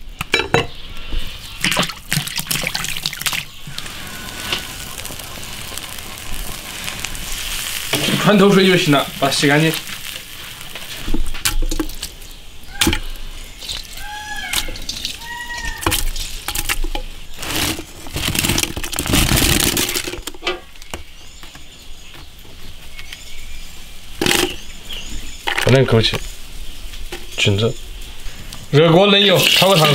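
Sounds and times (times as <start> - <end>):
bird chirps: 12.1 - 17.4
rustling clatter: 15.9 - 20.4.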